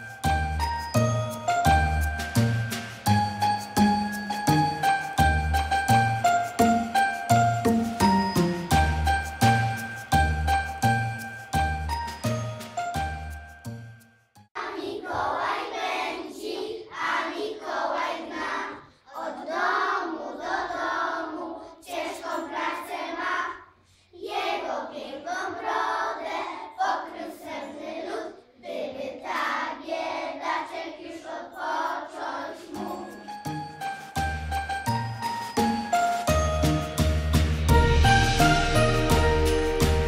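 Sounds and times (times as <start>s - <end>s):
children singing: 14.6s - 33.6s.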